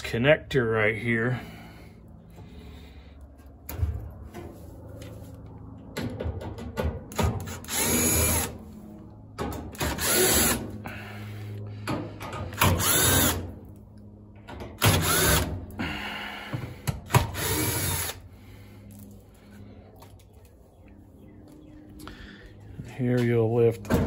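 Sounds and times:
cordless drill driving screws: 0:07.4 - 0:08.5, 0:09.8 - 0:10.6, 0:12.6 - 0:13.4, 0:14.8 - 0:15.5, 0:17.1 - 0:18.2.

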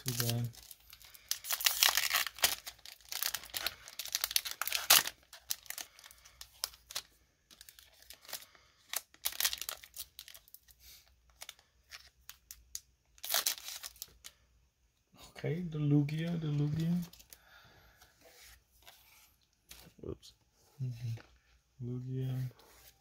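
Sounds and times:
foil wrapper crinkling and tearing: 0:00.0 - 0:14.3.

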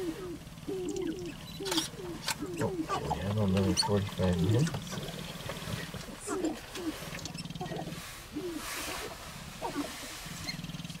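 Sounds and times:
grouse clucking and cooing: 0:00.0 - 0:11.0
grouse stamping rattle: 0:00.0 - 0:11.0.

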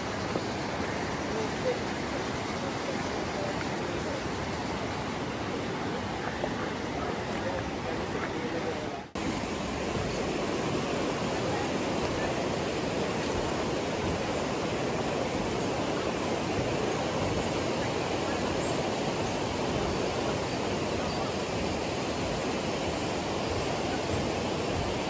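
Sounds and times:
river rushing over rapids: 0:00.0 - 0:25.0.

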